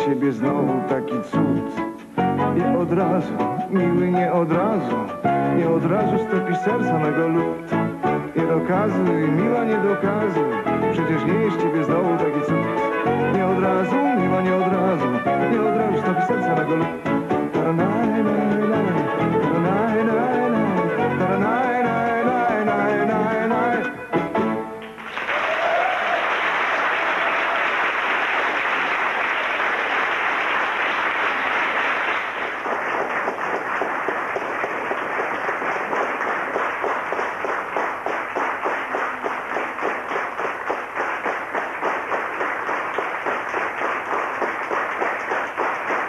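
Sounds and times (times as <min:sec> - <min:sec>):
audience applauding: 0:24.8 - 0:46.0.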